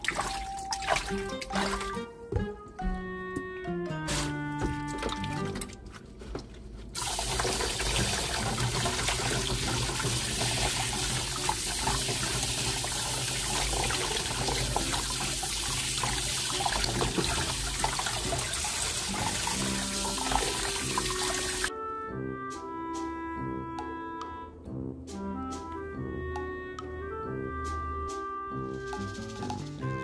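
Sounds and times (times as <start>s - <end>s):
faucet water splashing into basin: 0.0s - 2.0s, 7.0s - 21.7s.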